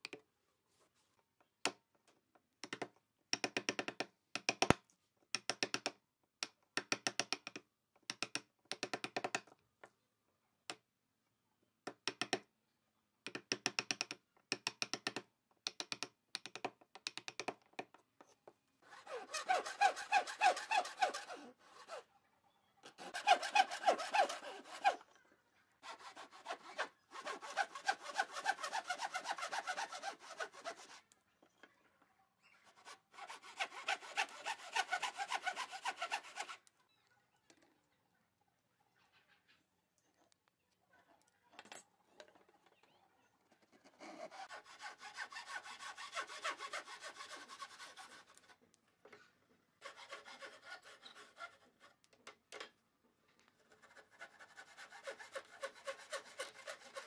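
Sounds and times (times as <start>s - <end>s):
hand saw cutting wood: 18.8s - 22.1s, 22.9s - 25.0s, 25.8s - 31.1s, 32.8s - 36.7s, 44.0s - 48.6s, 49.8s - 51.9s, 53.6s - 57.0s
chisel scraping wood: 18.9s - 22.0s, 23.0s - 25.0s, 25.8s - 31.1s, 32.5s - 36.7s, 43.8s - 48.5s, 49.8s - 51.9s, 53.7s - 57.0s.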